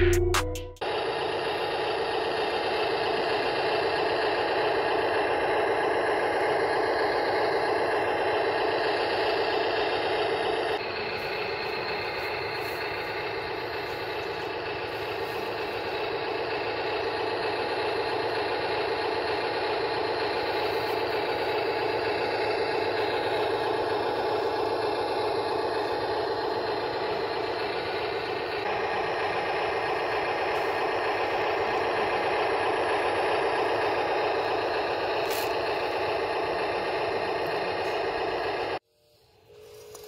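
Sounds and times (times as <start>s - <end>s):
toy loader motor whirring and rattling: 39.5s - 40.0s.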